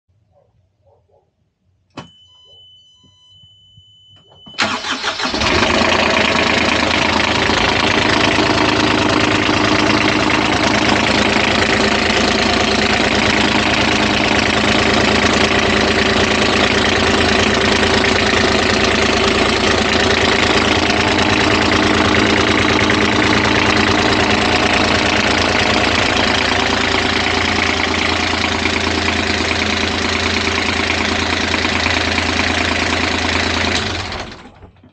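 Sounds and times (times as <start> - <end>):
warning buzzer beep: 2.0 - 4.6
diesel engine starting and idling: 4.4 - 34.9.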